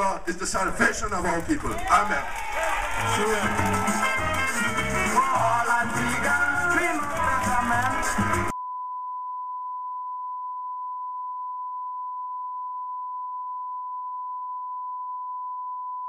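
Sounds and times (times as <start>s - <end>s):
music: 2.7s - 8.5s.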